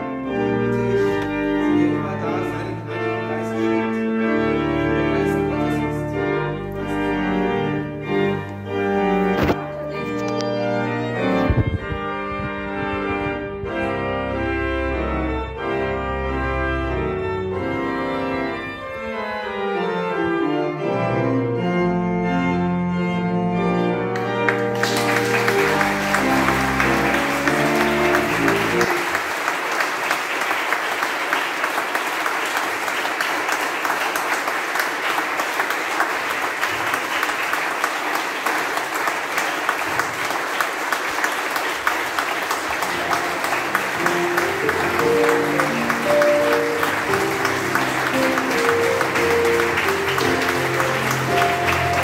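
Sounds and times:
congregation applauding: 0.0 - 2.9, 24.1 - 52.0
organ playing: 0.0 - 52.0.

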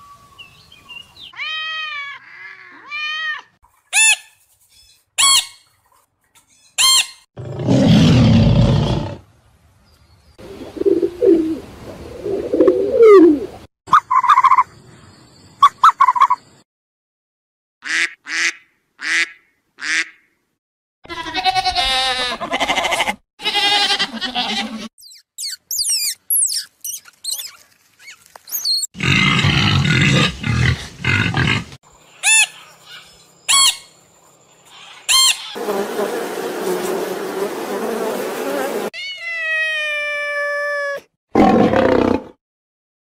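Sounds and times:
cat calling: 1.3 - 3.5
goats bleating: 21.1 - 24.9
pig grunting: 29.0 - 31.8.

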